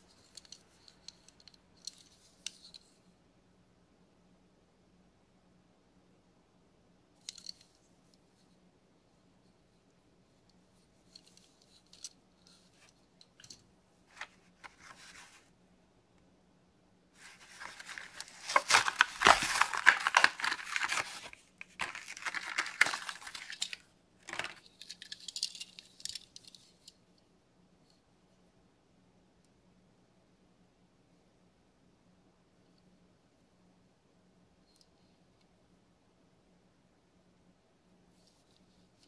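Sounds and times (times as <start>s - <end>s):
cardboard ripping: 17.2s - 23.6s
packaging crackling: 17.2s - 25.4s.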